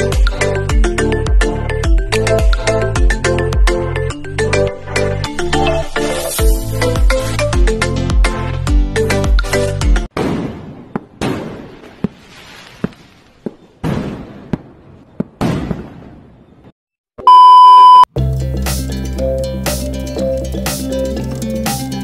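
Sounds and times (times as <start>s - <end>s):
music: 0.0s - 10.1s, 18.1s - 22.0s
firework bangs: 13.8s - 16.4s
loud steady beep: 17.2s - 18.1s.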